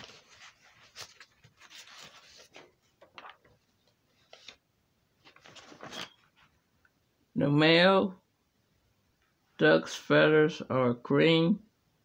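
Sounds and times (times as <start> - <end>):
paper pages rustling: 0.0 - 4.6, 5.2 - 6.6.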